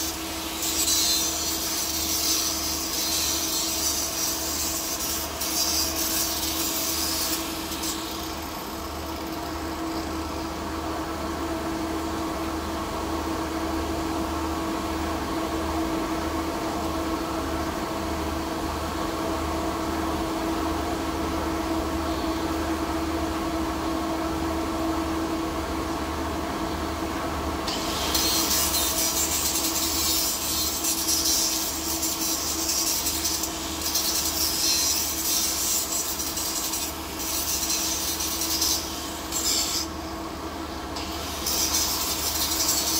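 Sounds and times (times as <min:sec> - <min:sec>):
grinding disc rasping on metal: 0:00.0 - 0:09.4, 0:27.7 - 0:39.9, 0:41.0 - 0:42.9.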